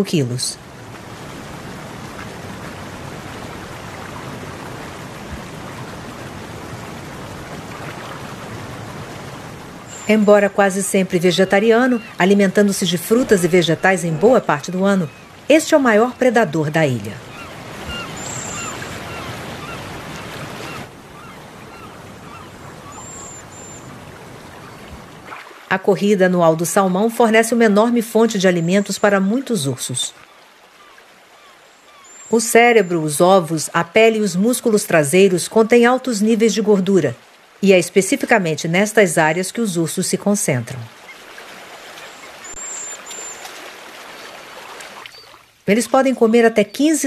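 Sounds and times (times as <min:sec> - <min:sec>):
bird chirps: 0:11.6 - 0:12.4, 0:17.3 - 0:19.8, 0:21.2 - 0:23.9, 0:30.8 - 0:32.5, 0:42.0 - 0:43.5
high bird whistles: 0:17.4 - 0:19.8, 0:22.3 - 0:23.9, 0:42.0 - 0:43.4.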